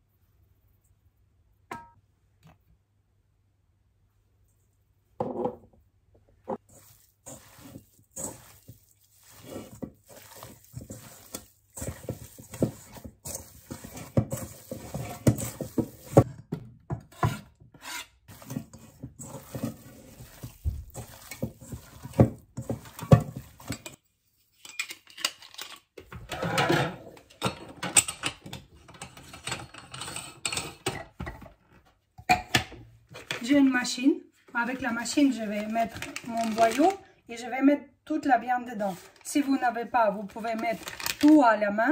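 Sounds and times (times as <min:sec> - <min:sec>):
hands kneading meat: 0:06.6 - 0:16.3, 0:18.3 - 0:24.3.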